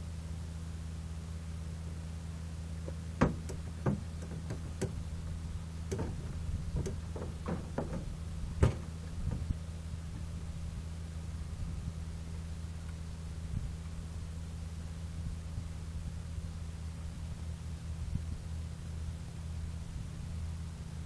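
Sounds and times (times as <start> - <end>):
steady low hum: 0.0 - 21.0
light clicks and knocks: 2.9 - 9.6.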